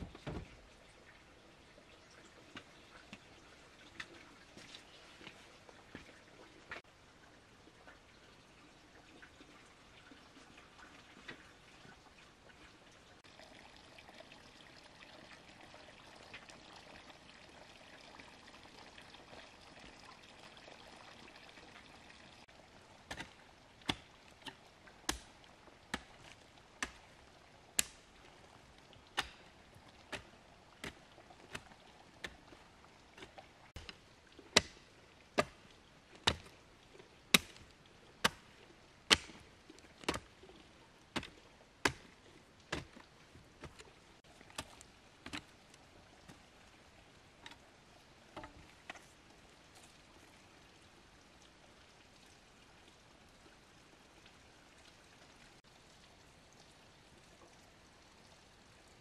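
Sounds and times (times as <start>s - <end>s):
faint water trickle: 0.4s - 59.0s.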